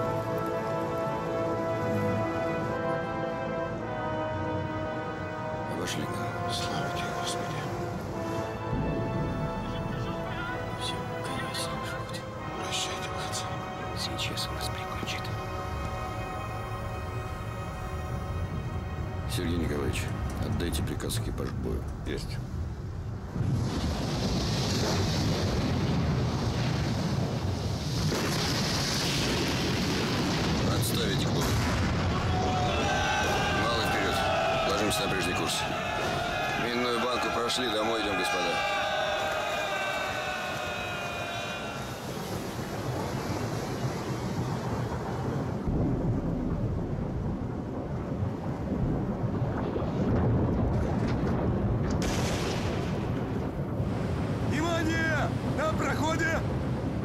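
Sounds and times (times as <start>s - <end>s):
rush of wind and sea water: 0.0s - 57.0s
deep continuous rumble: 14.4s - 36.6s, 42.1s - 54.6s
deep rumble: 44.4s - 54.5s.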